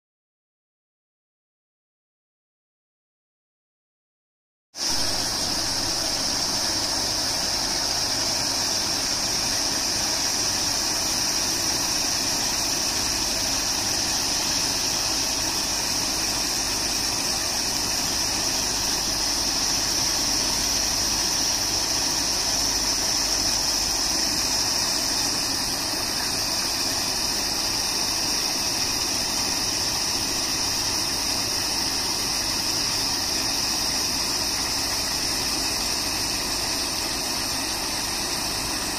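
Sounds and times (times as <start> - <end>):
machine hum: 4.8 - 38.9.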